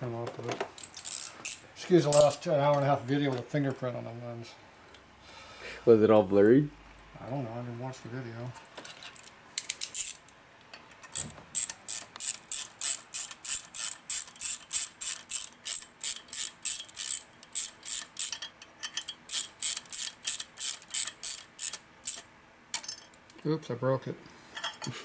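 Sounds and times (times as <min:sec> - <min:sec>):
ratcheting hand tool clicking: 0:00.8 - 0:02.4, 0:09.6 - 0:10.2, 0:11.1 - 0:22.9.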